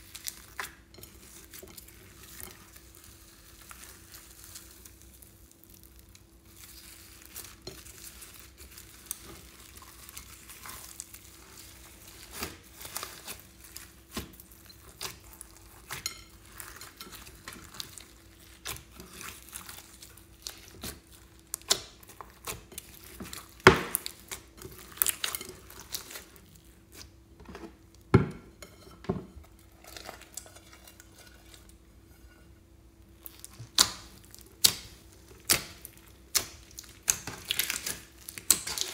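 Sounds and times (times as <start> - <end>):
hands squishing slime: 6.0 - 27.1, 33.2 - 38.9.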